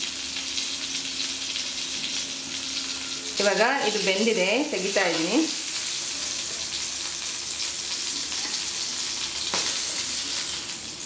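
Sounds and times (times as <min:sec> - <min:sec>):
oil sizzling in a frying pan: 0:00.0 - 0:11.0
metal spoon in a pan: 0:08.3 - 0:10.7.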